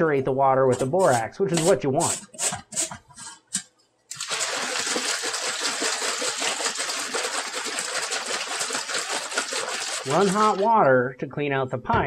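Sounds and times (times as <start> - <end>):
water and powder sloshing in container: 4.1 - 10.9.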